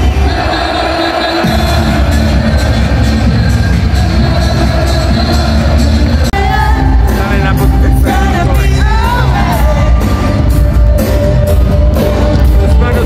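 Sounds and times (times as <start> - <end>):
music with heavy bass beat: 0.0 - 13.0
person singing: 3.9 - 13.0.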